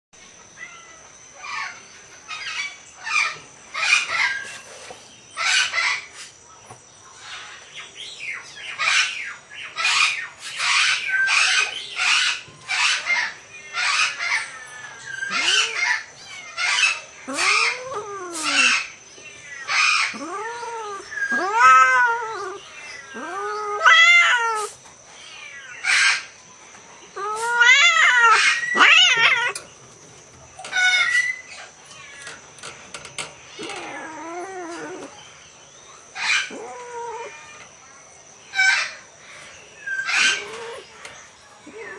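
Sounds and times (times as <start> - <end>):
cats yowling: 14.0 - 19.0, 19.6 - 26.4, 27.0 - 29.7, 33.5 - 35.2, 36.1 - 37.8, 39.8 - 41.9
cats short breathy calls: 27.2 - 29.6.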